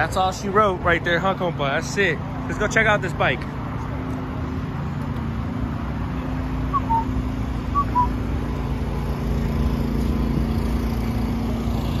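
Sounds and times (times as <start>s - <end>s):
two-note whistled chirps: 6.7s - 7.1s, 7.7s - 8.1s.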